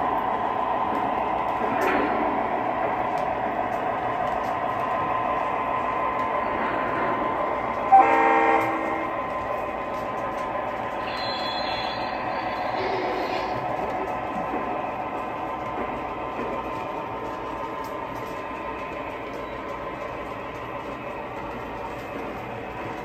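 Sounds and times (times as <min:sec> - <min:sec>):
model locomotive horn blast: 0:07.9 - 0:09.1.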